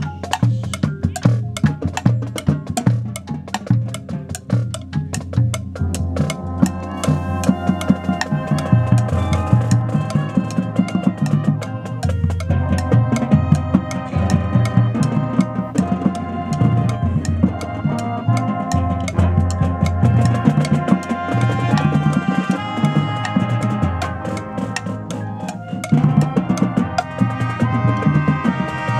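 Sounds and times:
marching band playing: 0.0 - 28.9
sharp drum strokes: 0.0 - 28.9
brass sustained chords: 6.1 - 28.9.

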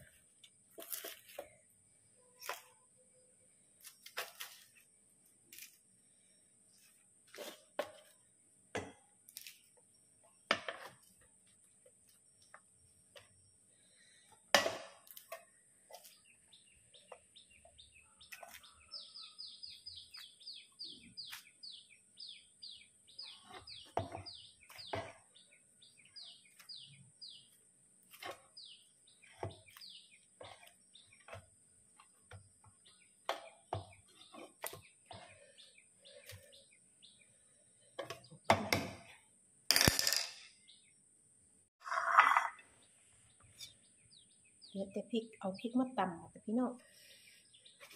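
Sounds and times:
eggplants being peeled: 0.2 - 1.6, 3.8 - 5.9, 18.3 - 19.4.

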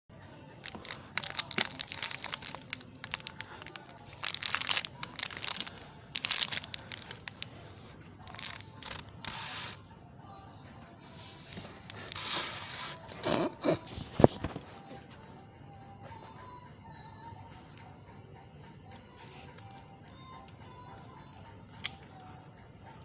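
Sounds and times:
biscuits cracking and crunching: 0.5 - 9.4, 19.0 - 23.0
plastic wrapper crinkling: 0.6 - 7.6, 8.2 - 9.4.

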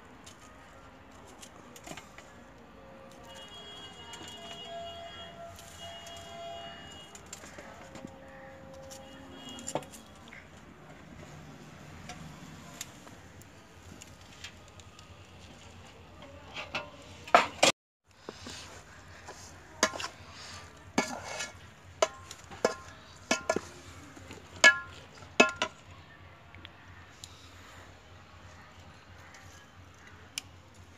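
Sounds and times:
metal utensil scraping a pot: 19.8 - 23.8.

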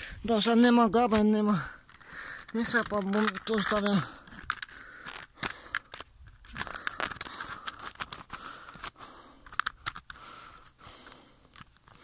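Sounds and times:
phone handling clicks and rustling: 0.4 - 12.0.

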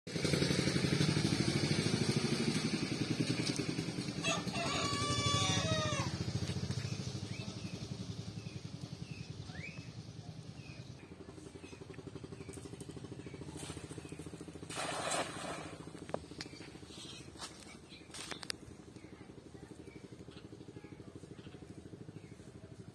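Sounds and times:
small engine running: 0.1 - 22.9
rooster crowing: 4.2 - 6.2
small bird chirps: 6.7 - 14.4.

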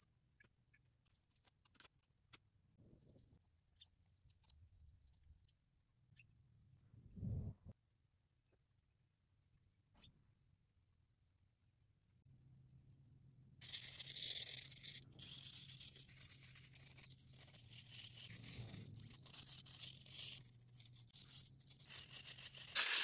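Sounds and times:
steady low hum: 6.8 - 7.8.

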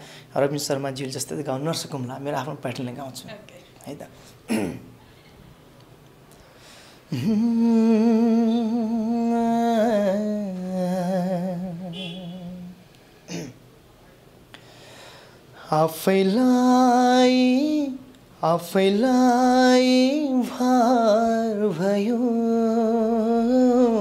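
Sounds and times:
man breathing: 0.0 - 0.3, 6.3 - 7.3, 14.5 - 15.7
man singing unaccompanied: 7.1 - 12.8, 15.6 - 24.0.

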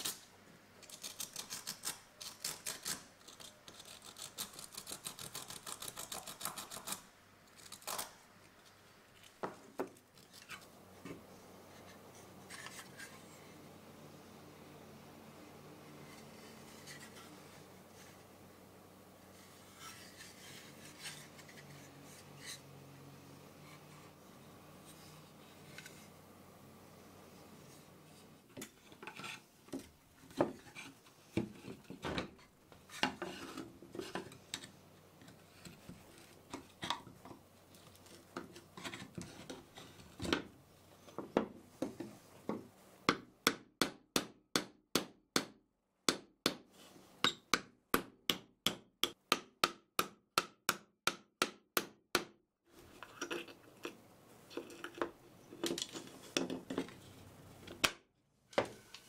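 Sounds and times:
small hammer tapping wood: 47.3 - 52.3
wooden parts knocking on workbench: 55.0 - 56.9.

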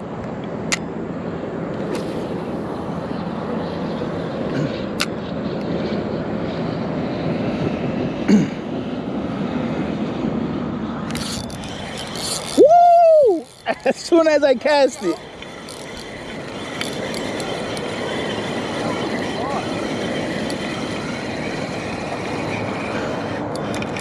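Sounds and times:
distant engine rumble: 0.0 - 24.0.

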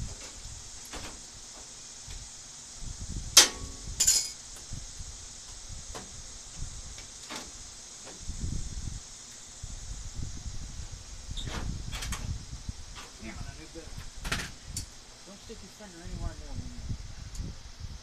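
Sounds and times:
steady high hiss: 0.0 - 18.0
metallic clinks of tools: 4.0 - 4.4.

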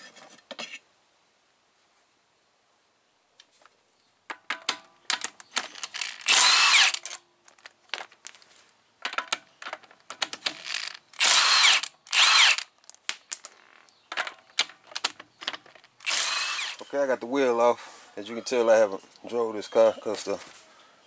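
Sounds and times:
clicks and clinks of bolts: 4.3 - 8.4
cordless power wrench whine: 5.8 - 7.0, 10.6 - 12.7, 16.0 - 16.9.

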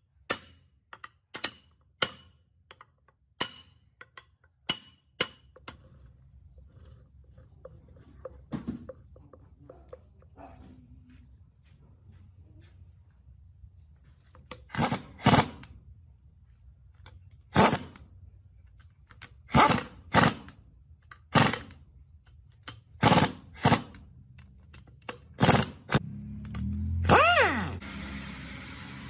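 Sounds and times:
pneumatic impact wrench rattling: 14.4 - 15.8, 17.4 - 18.1, 19.1 - 21.8, 22.5 - 24.1, 24.8 - 27.7.

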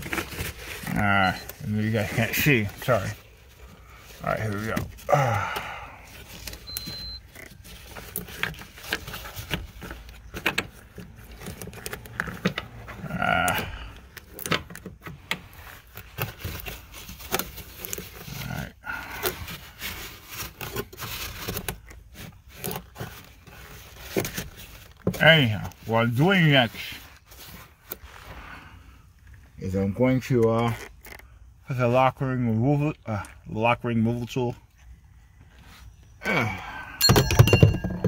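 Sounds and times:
gloved hands and tools handling parts: 0.0 - 38.0
low strained grunt: 4.6 - 6.2, 12.9 - 14.2, 36.2 - 37.1.

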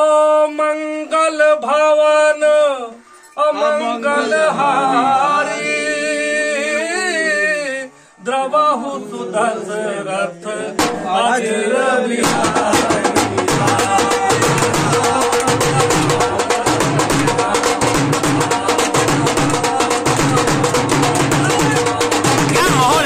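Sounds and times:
man singing unaccompanied: 0.0 - 23.0
barrel drum fast beats: 10.8 - 11.3, 12.2 - 23.0.

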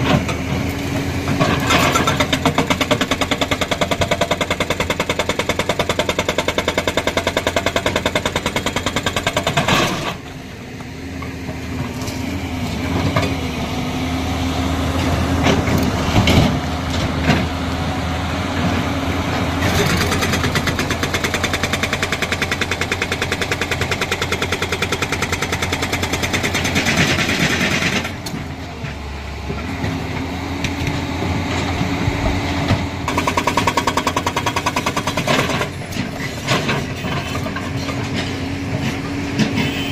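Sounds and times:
excavator diesel engines running: 0.0 - 39.9
hydraulic rock breaker hammering: 1.6 - 10.2, 19.6 - 28.3, 33.0 - 36.8.

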